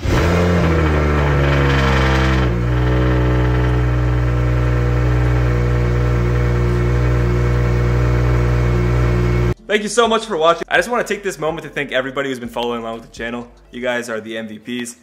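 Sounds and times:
car engine idling: 0.0 - 9.6.

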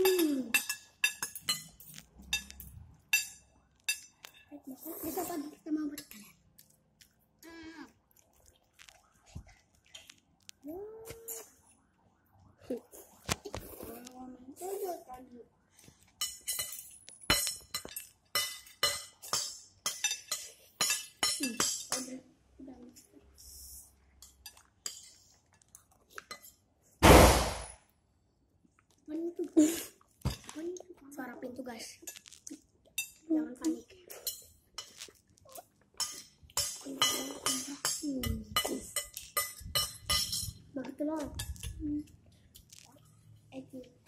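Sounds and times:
cutlery clinking against plates: 0.0 - 4.5, 16.2 - 22.1, 36.0 - 40.7.

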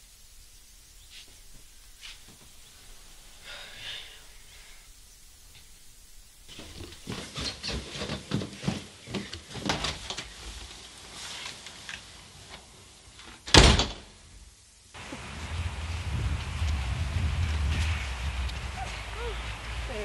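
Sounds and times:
footsteps on carpeted stairs: 1.1 - 2.8, 6.4 - 10.2
front door slamming shut: 13.5 - 14.2.

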